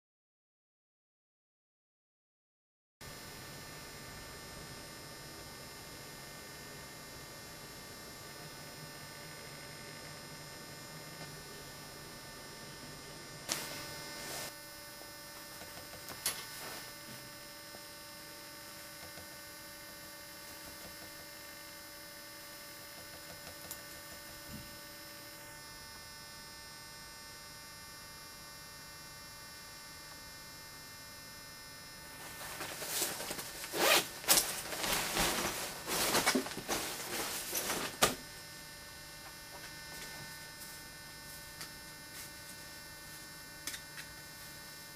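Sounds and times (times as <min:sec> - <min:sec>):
steady electrical hum: 0:03.0 - 0:44.9
rustling and knocking handling noise: 0:32.3 - 0:38.2.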